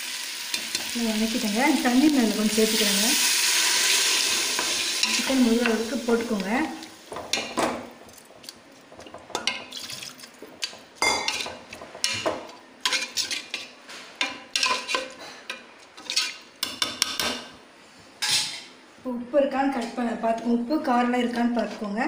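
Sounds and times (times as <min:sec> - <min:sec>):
wet stirring: 0:15.8 - 0:16.5.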